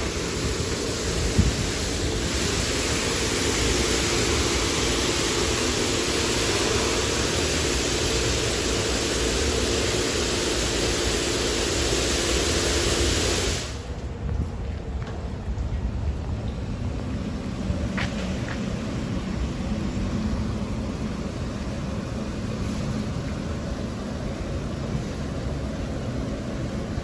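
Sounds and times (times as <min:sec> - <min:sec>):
high-pressure water spray hissing: 0:00.0 - 0:13.9.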